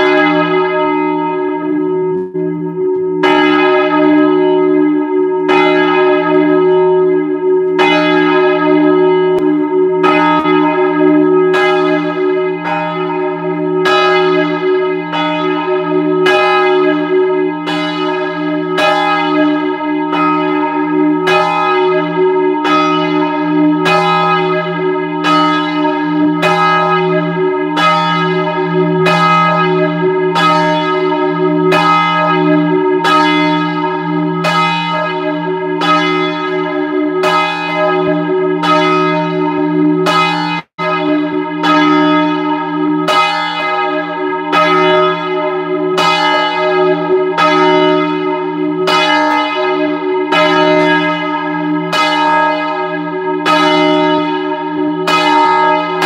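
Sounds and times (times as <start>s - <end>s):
church bells ringing: 0.0s - 56.0s.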